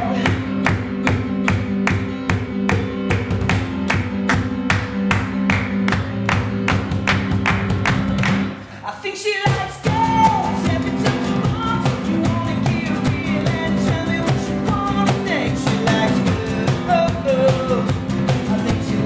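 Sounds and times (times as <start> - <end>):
man singing lead vocal: 0.0 - 0.7, 8.8 - 19.0
cajon beat: 0.0 - 8.6, 9.4 - 19.0
keyboard: 0.0 - 8.8, 9.8 - 19.0
strummed acoustic guitars: 0.0 - 8.8, 9.5 - 19.0.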